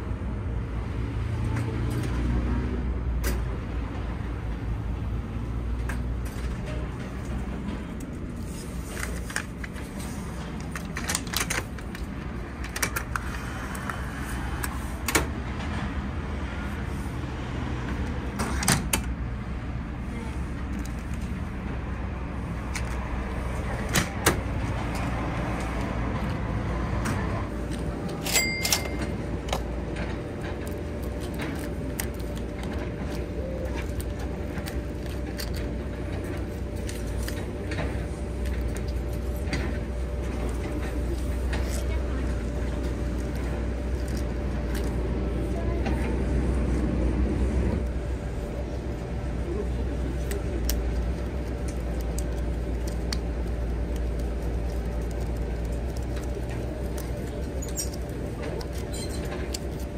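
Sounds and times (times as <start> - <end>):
vending machine clicks and clunks: 10.5 - 13.4, 27.8 - 34.9.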